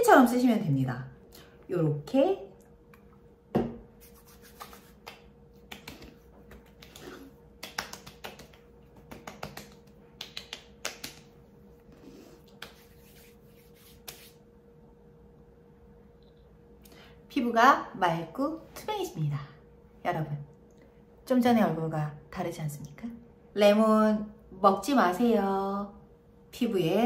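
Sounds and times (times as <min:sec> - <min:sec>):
hands patting skin: 0:03.9 - 0:14.4.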